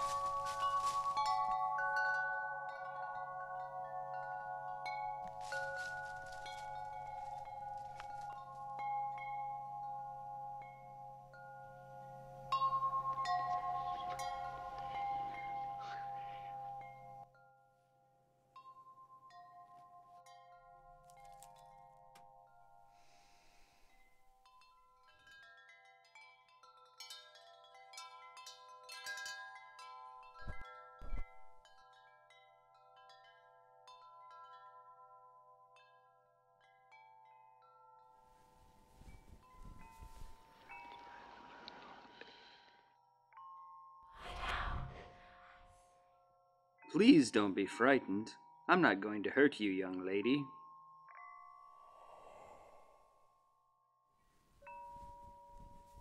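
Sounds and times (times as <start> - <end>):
chimes ringing: 0.0 - 17.7, 46.2 - 56.0.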